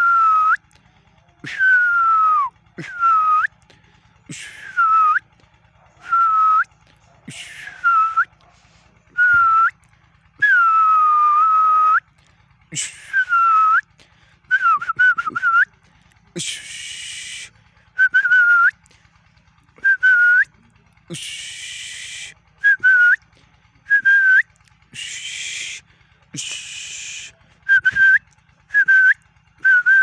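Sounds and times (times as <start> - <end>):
person whistling: 1.4 - 3.5, 4.3 - 5.2, 7.6 - 8.3, 9.2 - 9.8, 10.4 - 12.0, 12.8 - 13.8, 14.5 - 15.7, 16.4 - 18.8, 19.8 - 20.5, 21.1 - 23.2, 23.9 - 25.8, 26.4 - 30.0.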